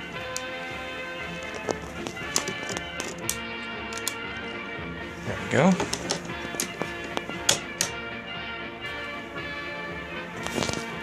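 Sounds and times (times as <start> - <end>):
music with held steady tones: 0.0 - 11.0.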